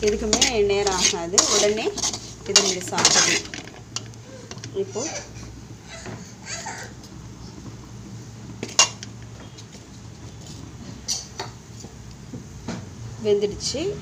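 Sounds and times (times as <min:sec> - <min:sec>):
metal spatula scraping a pan: 0:00.0 - 0:05.5, 0:08.6 - 0:11.4.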